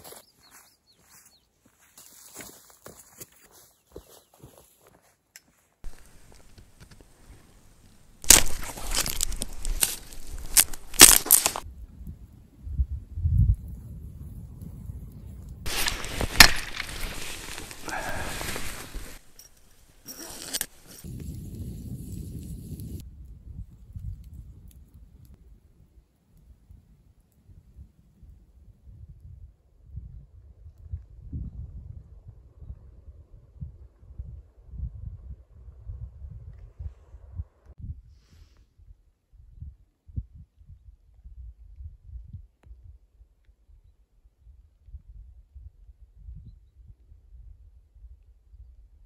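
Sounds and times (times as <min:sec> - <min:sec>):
campfire burning: 0:05.8 - 0:11.6, 0:14.6 - 0:27.8
dry twigs crunching: 0:05.8 - 0:11.6, 0:15.7 - 0:21.2
fire crackle: 0:05.8 - 0:12.2, 0:13.5 - 0:28.0
brush rustling: 0:05.9 - 0:11.6, 0:15.7 - 0:21.1.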